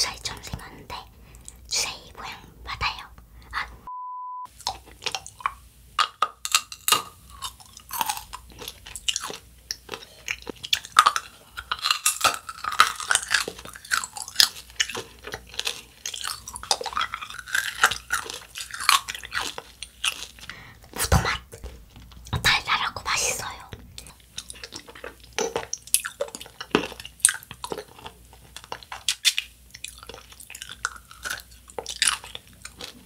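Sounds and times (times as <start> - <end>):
short beep tone: 3.9 - 4.5
hard candy crunching on teeth: 4.6 - 22.8, 23.4 - 33.0.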